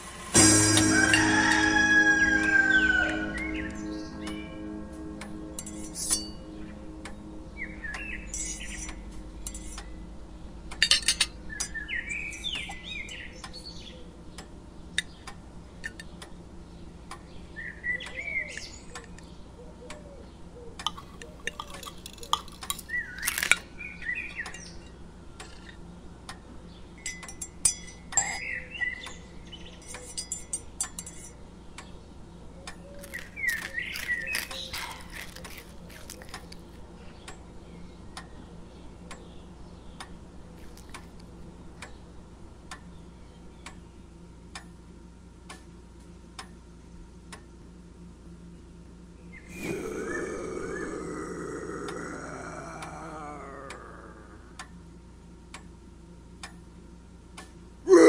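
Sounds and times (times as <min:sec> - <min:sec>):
faint steady hum: 0:00.0 - 0:58.0
cutlery and plates clinking: 0:10.8 - 0:11.3, 0:20.9 - 0:23.6.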